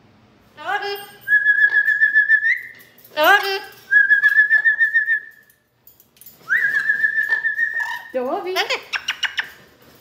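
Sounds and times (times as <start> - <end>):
parrot whistling with warble: 1.3 - 2.8, 3.9 - 5.4, 6.5 - 8.2.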